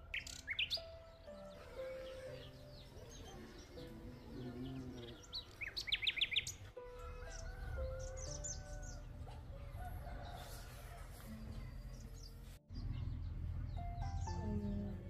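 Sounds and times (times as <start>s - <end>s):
songbird chirping: 0.0s - 15.0s
rooster crowing: 7.0s - 11.2s.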